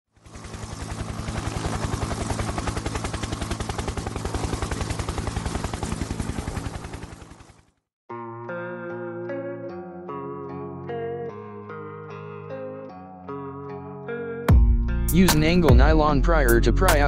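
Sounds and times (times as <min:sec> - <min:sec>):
rapid pulsing noise: 0:00.2 - 0:07.6.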